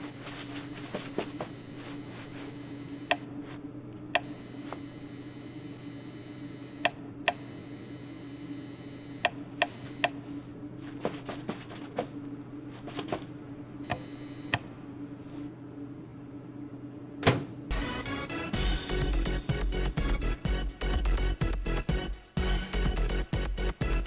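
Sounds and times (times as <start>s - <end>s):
low electrical hum: 0.0s - 18.5s.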